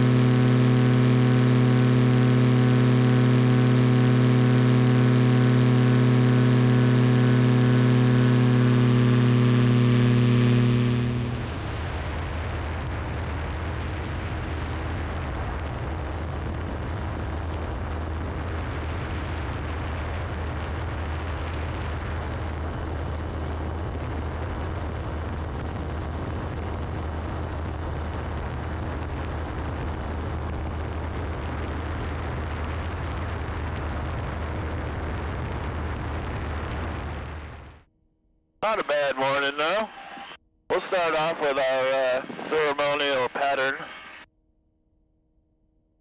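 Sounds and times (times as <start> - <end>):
ultralight engine drone: 0.0 - 37.9, 38.6 - 44.3
wind rushing over microphone: 8.0 - 37.8.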